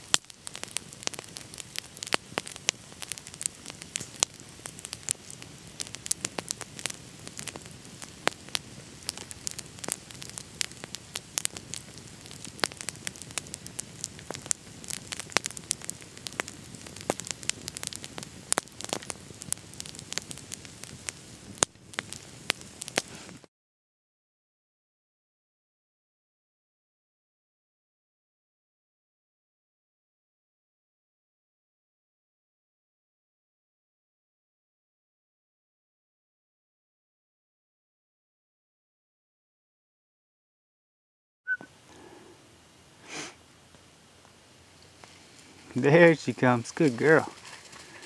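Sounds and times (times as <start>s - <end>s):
campfire crackling and popping: 0.0s - 23.5s, 41.5s - 48.0s.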